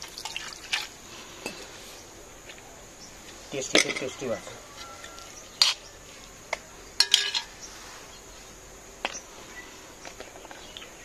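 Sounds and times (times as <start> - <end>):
insects chirring: 0.0 - 11.0
metal plate clinking: 3.7 - 4.4, 7.0 - 7.5.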